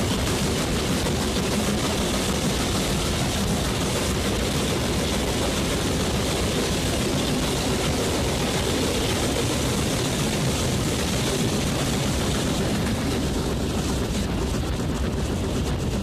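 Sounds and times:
steam train in a tunnel: 0.0 - 16.0.

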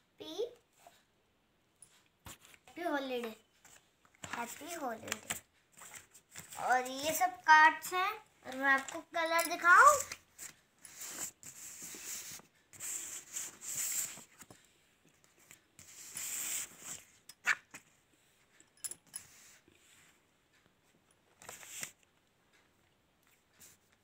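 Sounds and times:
paper cards rustling on cloth: 2.3 - 14.6, 21.4 - 22.0.

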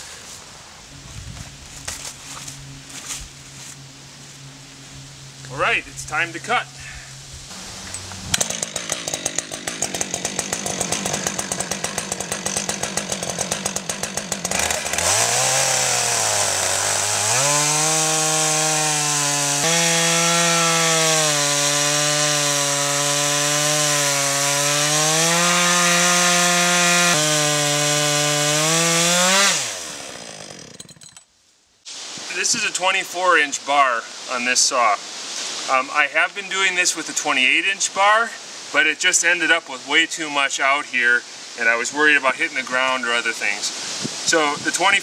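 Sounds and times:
chainsaw cutting log: 7.5 - 31.2.

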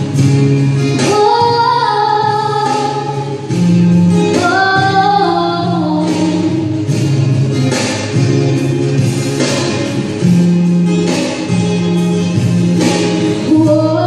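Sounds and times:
instrumental accompaniment: 0.0 - 14.0
girl singing a slow ballad: 0.2 - 7.2, 13.2 - 14.0.

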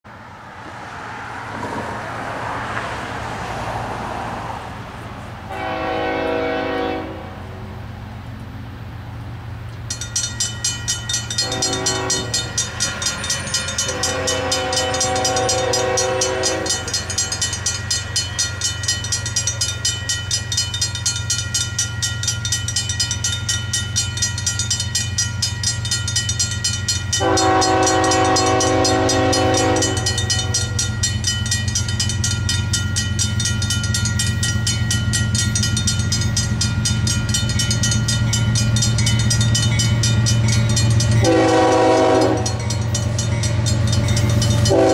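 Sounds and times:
locomotive horn blasts: 5.5 - 7.6, 11.4 - 12.5, 13.8 - 17.0, 27.2 - 30.8, 41.2 - 42.8, 44.5 - 44.9
crossing bell ringing rapidly: 9.8 - 44.9.

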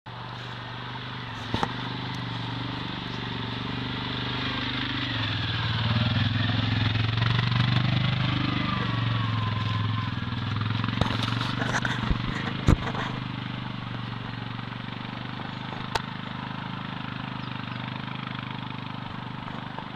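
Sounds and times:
quad bike engine running: 0.1 - 19.9.

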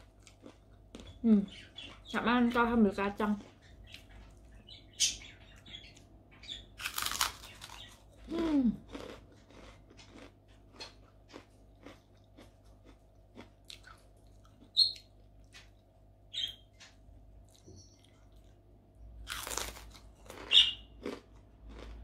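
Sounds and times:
crunchy chewing: 0.0 - 2.2, 6.8 - 16.0, 19.2 - 22.0
crunching cracker: 6.8 - 14.7, 19.2 - 22.0
person humming mm: 8.3 - 8.8.

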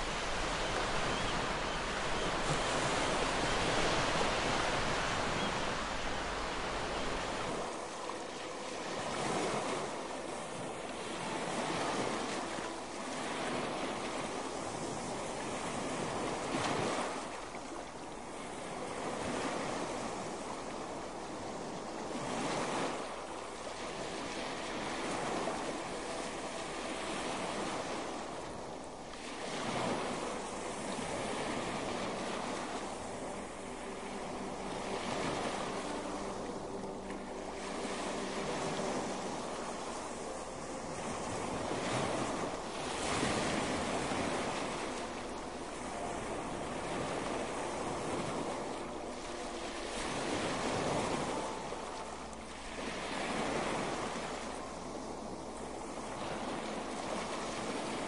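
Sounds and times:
ocean waves breaking on shore: 0.0 - 58.0.

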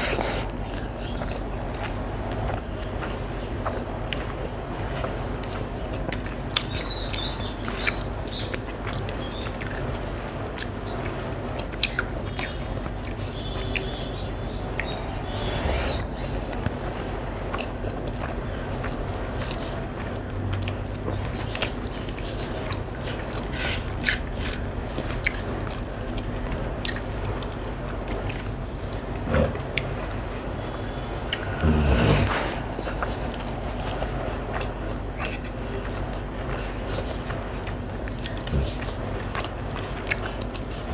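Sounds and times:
chewing: 0.0 - 40.9
low steady hum: 0.0 - 40.9
fingers mixing wet rice: 4.9 - 16.8.

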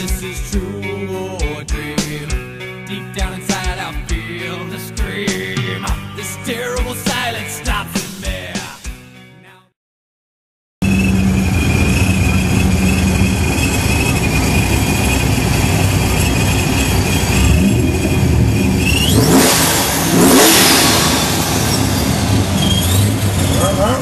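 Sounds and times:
car engine revving with whine: 10.8 - 24.0.

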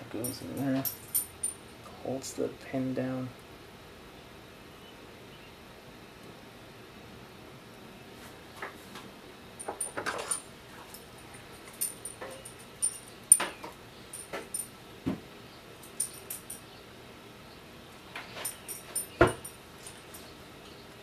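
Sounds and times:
screwdriver and metal parts clicking: 0.2 - 1.6, 11.4 - 14.7, 15.8 - 16.6, 18.2 - 20.3.

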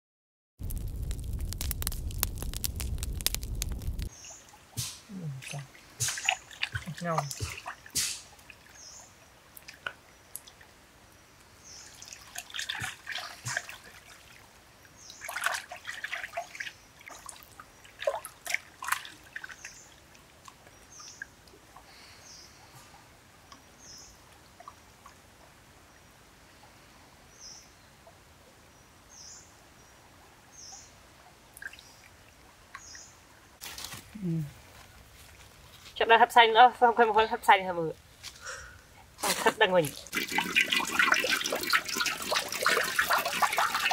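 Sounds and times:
water sloshing in a pan: 4.1 - 9.9, 11.9 - 20.4, 39.2 - 43.9.

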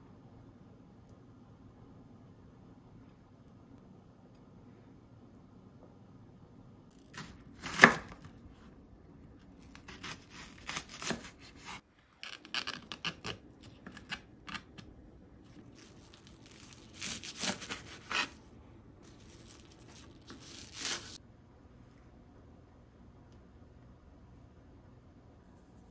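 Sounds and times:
rustling and scraping: 19.0 - 21.2.

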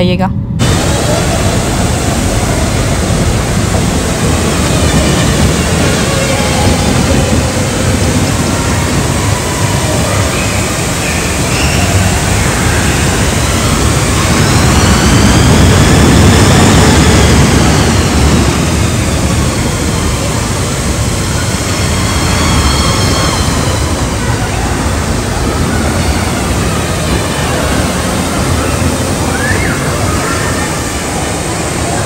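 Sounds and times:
roller coaster rumbling on track: 0.0 - 32.0
whining wheel noise: 0.5 - 32.0.

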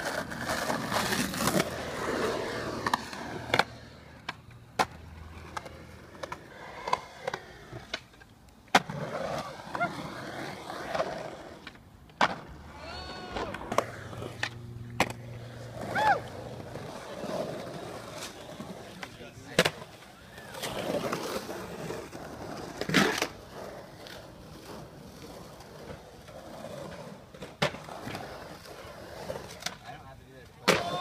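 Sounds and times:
skateboard clacking on concrete: 0.0 - 31.0
skateboard wheels rolling on concrete: 0.0 - 31.0.

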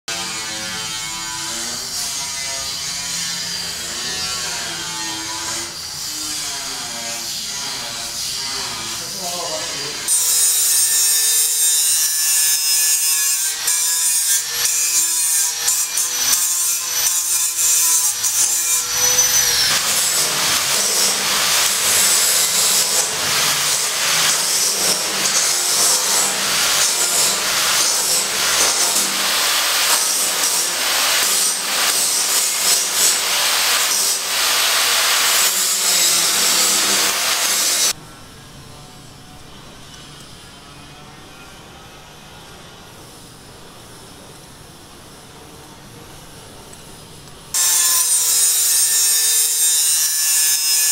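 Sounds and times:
rasping scraping strokes: 0.1 - 38.0.

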